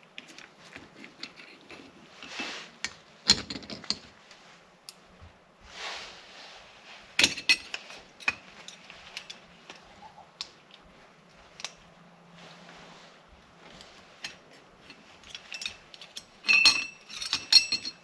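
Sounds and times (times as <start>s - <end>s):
short rustle: 0.0s - 3.2s, 4.1s - 16.4s
steel parts clinking: 7.2s - 10.9s, 13.8s - 18.0s.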